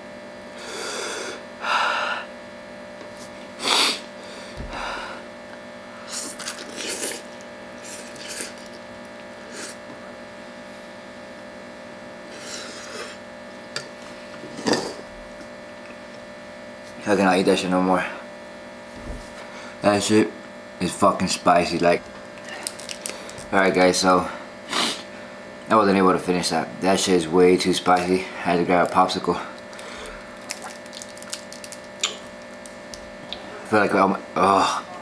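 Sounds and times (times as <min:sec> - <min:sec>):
electrical hum: 0:00.0 - 0:35.0
man hissing breaths: 0:00.6 - 0:02.3, 0:03.6 - 0:05.3
slurps and mouth noises: 0:06.0 - 0:09.8, 0:29.7 - 0:32.2.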